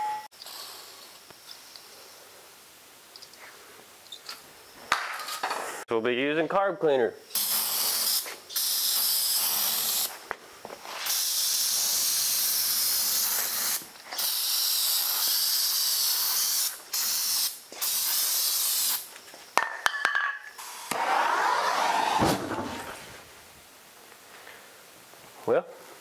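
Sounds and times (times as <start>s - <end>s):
aerosol can spraying: 7.3s - 10.2s, 10.9s - 19.1s
can clinking on concrete: 19.6s - 20.5s
short rushing noise: 21.0s - 23.3s.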